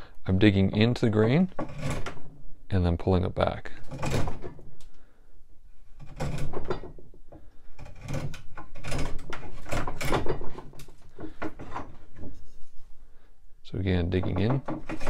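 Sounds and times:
draw knife shaving wood: 7.8 - 10.9.

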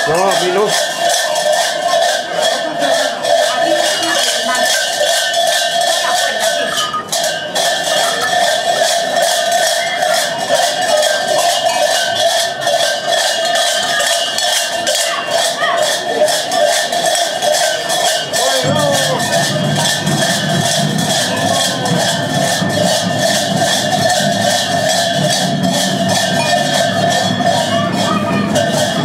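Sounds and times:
cowbells clanking and jangling: 0.0 - 29.0.

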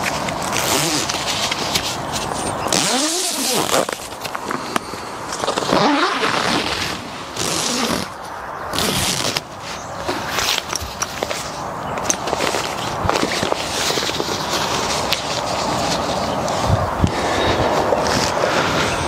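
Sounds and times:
fabric rustling and swishing: 8.8 - 19.0.

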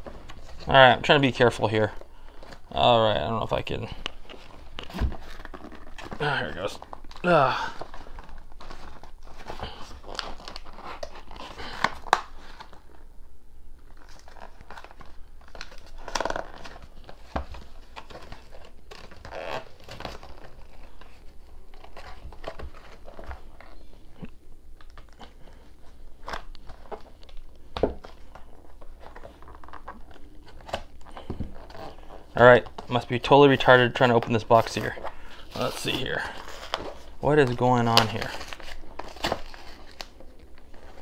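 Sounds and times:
cardboard box tearing and rustling: 34.6 - 41.0.

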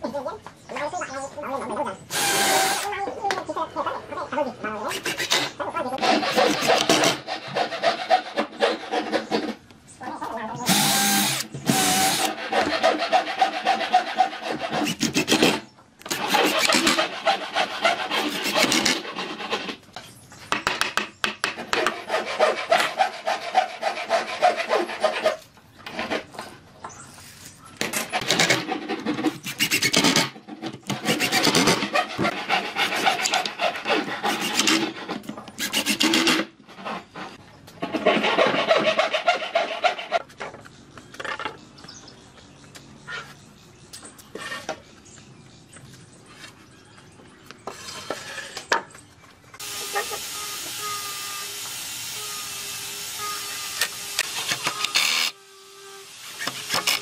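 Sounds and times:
tool rasping on wood: 4.9 - 9.6, 10.7 - 19.8, 21.7 - 25.4, 28.1 - 30.3, 30.9 - 36.4.

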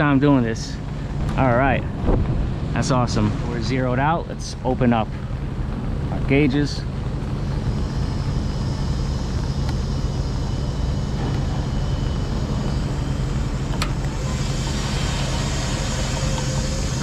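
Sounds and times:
low machine hum: 0.0 - 17.0
hiss: 14.1 - 17.0.

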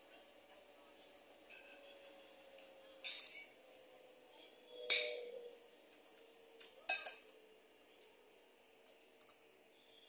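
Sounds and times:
metal spoon clinking on plate: 3.0 - 3.6, 6.9 - 7.4.

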